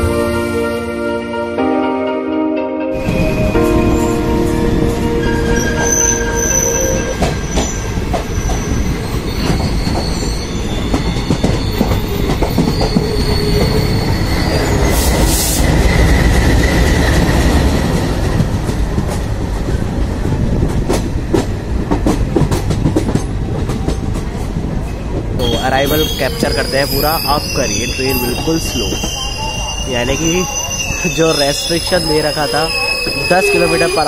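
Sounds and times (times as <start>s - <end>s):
train wheels rumbling and clattering: 3.0s - 34.0s
train wheel squeal: 5.2s - 17.9s, 24.9s - 34.0s.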